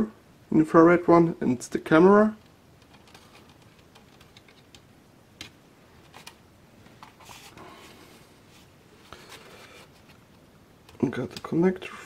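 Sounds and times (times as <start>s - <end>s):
plastic parts rubbing: 2.8s - 4.8s.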